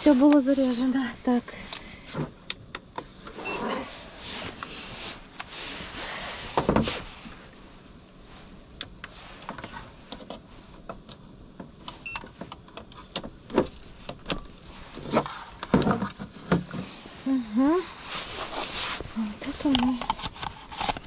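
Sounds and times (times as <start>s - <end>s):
cord rustling: 13.6s - 21.0s.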